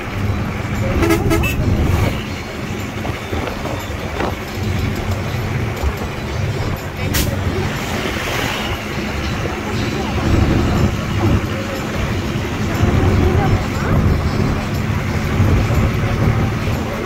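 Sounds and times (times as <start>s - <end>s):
vehicle engine and tyres rumbling: 0.0s - 17.0s.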